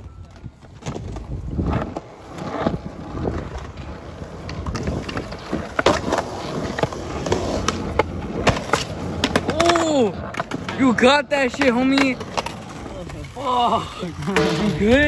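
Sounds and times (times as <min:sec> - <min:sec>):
skateboard clacks: 0:00.0 - 0:15.0
skateboard wheels rolling on concrete: 0:00.0 - 0:15.0.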